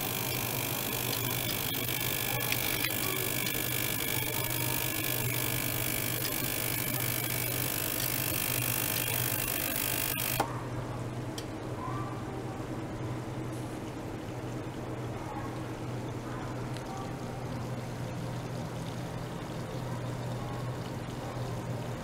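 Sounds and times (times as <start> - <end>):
ultrasonic cleaner humming: 0.0 - 10.5.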